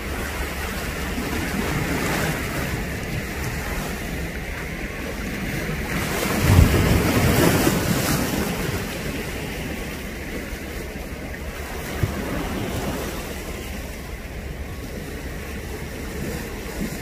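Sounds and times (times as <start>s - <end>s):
sea water washing: 0.0s - 17.0s
wind buffeting microphone: 0.0s - 17.0s.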